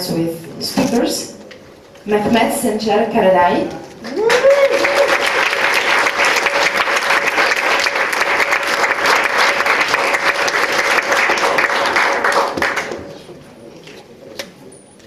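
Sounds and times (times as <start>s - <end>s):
audience applauding: 4.0s - 13.3s.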